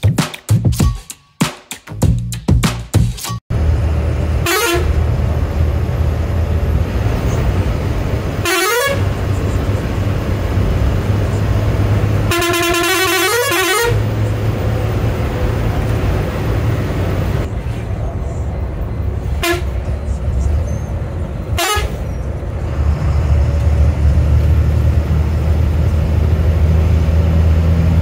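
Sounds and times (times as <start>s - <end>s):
bus engine running: 3.5s - 28.0s
bus horn blasts: 4.4s - 5.2s, 8.3s - 9.3s, 12.1s - 14.3s, 19.3s - 19.8s, 21.5s - 22.1s.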